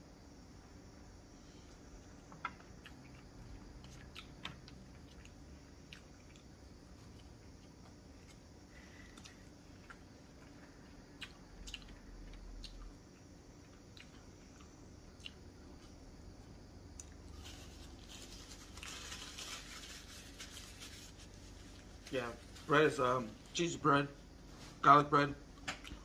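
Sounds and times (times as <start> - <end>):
person chewing bread: 2.0 - 19.6.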